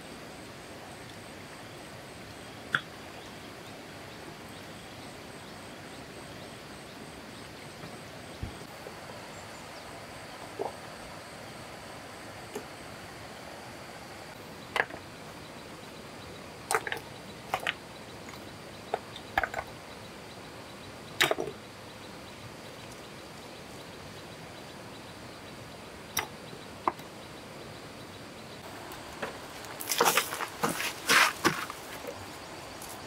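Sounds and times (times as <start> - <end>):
rocks clacking together: 16.7 - 19.7, 29.0 - 32.2.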